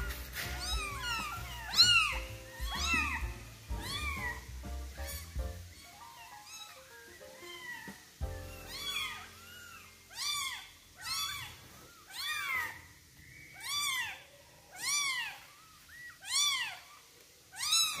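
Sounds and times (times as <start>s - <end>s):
kitten mewing: 0.6s - 4.5s.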